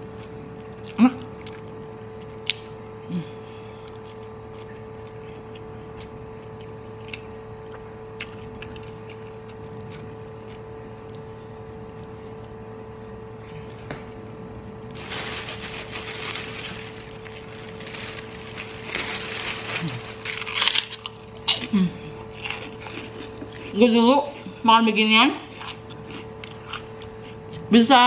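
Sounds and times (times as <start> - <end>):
low room hum: 0.0 - 28.0
plastic bag rustling: 14.9 - 21.4.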